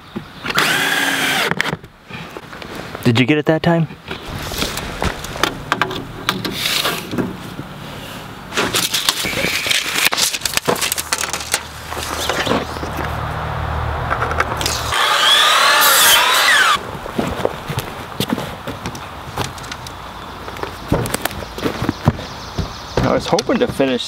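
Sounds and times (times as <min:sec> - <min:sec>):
miter saw cutting wood: 0:00.5 - 0:01.7, 0:14.6 - 0:16.8
low steady hum: 0:04.2 - 0:08.5
clicks and knocks of handling: 0:08.6 - 0:13.1.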